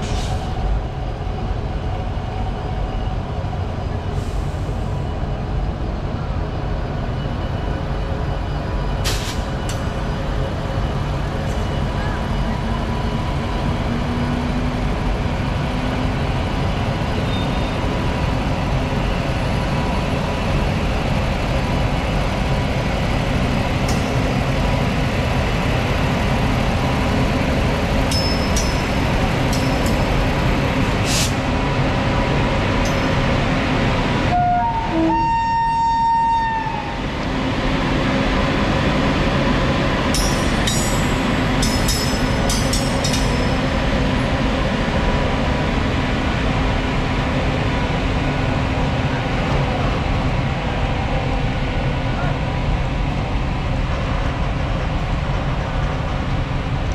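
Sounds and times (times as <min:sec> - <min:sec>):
train wheels rumbling on rail: 0:00.0 - 0:56.9
locomotive horn: 0:34.3 - 0:37.0.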